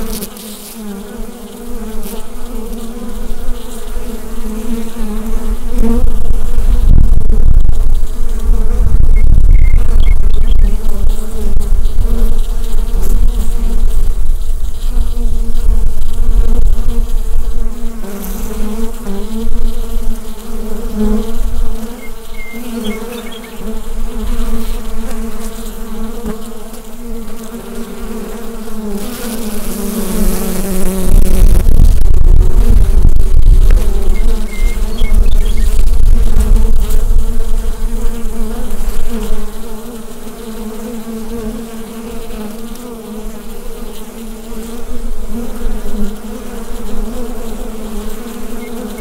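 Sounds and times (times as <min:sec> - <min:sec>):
bees buzzing: 0:00.0 - 0:49.0.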